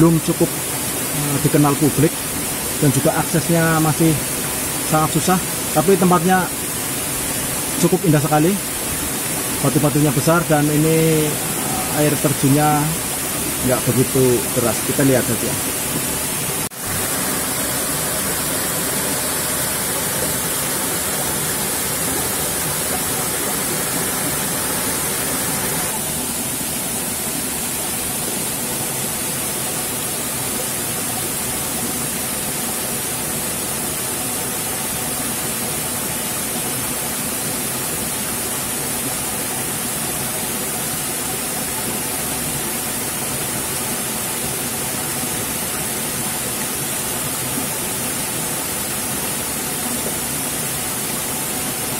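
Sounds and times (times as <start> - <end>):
small waterfall splashing: 0.0 - 51.9.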